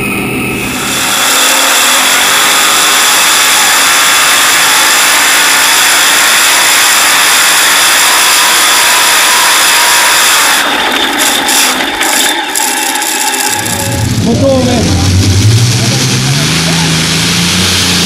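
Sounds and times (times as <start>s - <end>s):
tractor engine running flat out: 10.3s - 18.0s.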